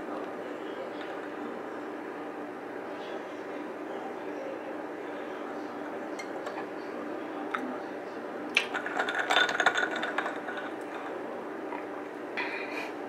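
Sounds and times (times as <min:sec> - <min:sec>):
kitchen utensils clicking and clinking: 0:08.6 - 0:11.1.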